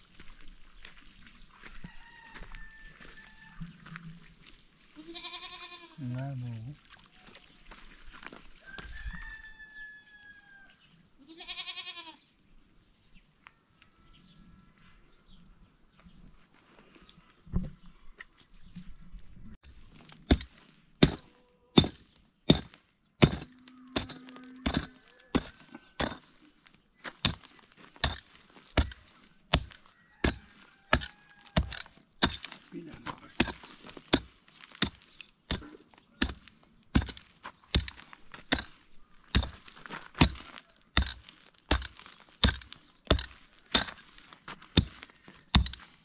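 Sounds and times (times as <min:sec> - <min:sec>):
livestock bleat: 0:05.0 - 0:06.3, 0:11.2 - 0:12.3, 0:23.5 - 0:25.3.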